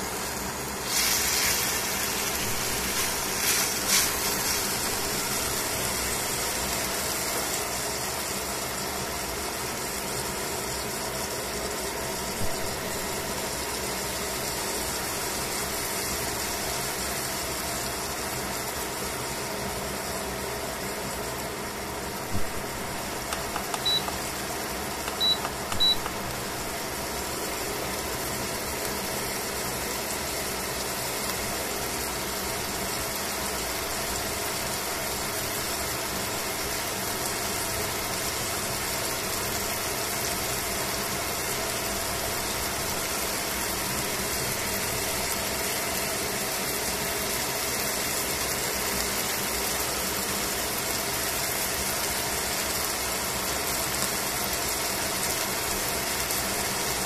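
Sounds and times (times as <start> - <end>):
meat sizzling in a pan: 0.0 - 57.0
short high beeps: 23.6 - 24.2, 25.1 - 26.1.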